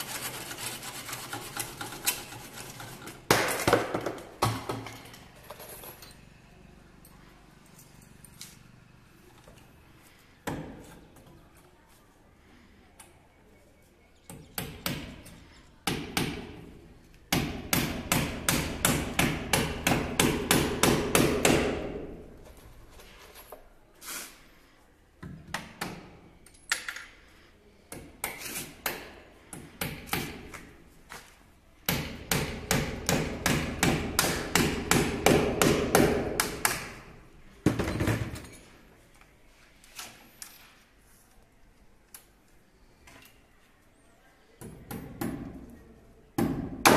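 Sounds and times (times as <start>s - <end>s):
hammer striking nails: 15.8s - 16.6s, 17.3s - 22.1s, 31.9s - 37.0s, 46.4s - 46.9s.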